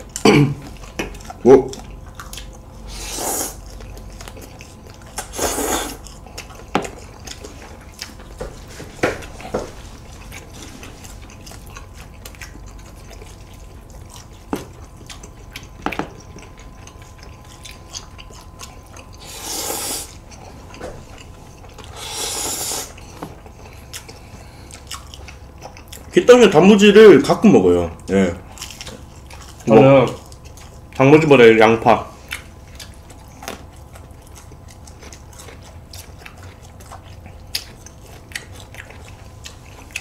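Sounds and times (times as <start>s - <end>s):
noodles slurped: 5.2s - 6.0s.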